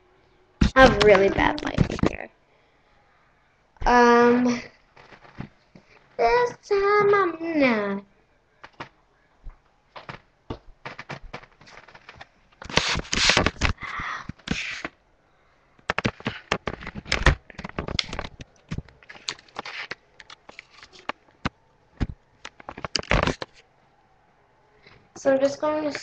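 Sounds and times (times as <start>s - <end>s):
handling clicks and crackles: 9.6s - 14.9s, 15.8s - 23.6s
rustling scrape: 10.8s - 13.8s, 14.4s - 14.9s, 19.0s - 21.2s.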